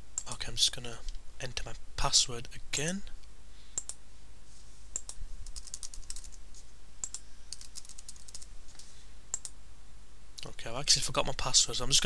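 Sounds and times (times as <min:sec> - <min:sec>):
keyboard typing: 0:05.0 - 0:06.4, 0:07.0 - 0:08.5.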